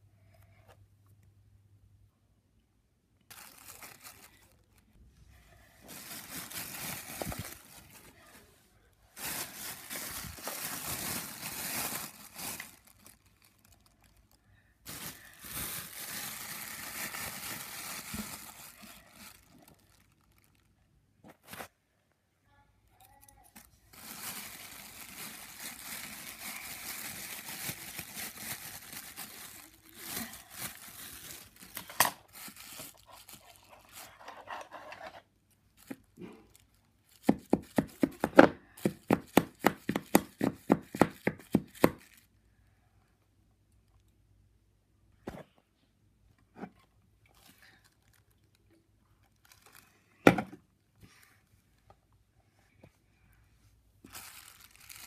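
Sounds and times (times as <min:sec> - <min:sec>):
plastic bag crinkling: 0:03.3 - 0:05.0, 0:05.8 - 0:08.4, 0:09.1 - 0:21.6, 0:23.6 - 0:34.3, 0:47.4 - 0:50.1, 0:54.0 - 0:55.0.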